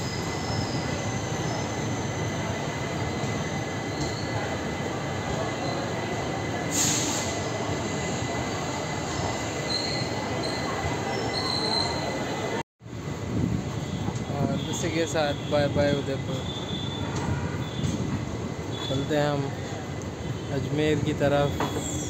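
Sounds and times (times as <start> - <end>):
train wheels rumbling on track: 0.0 - 22.0
short hiss: 6.7 - 7.4
faint wheel squeals: 9.1 - 12.2, 21.3 - 22.0.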